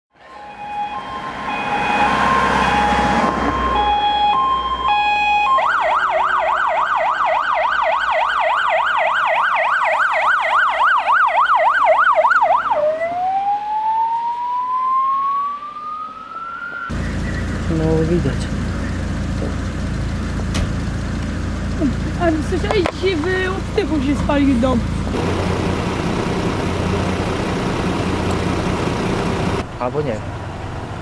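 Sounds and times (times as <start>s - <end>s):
emergency vehicle siren: 0.1s - 19.3s
passing vehicle: 0.2s - 5.6s, 14.7s - 31.0s.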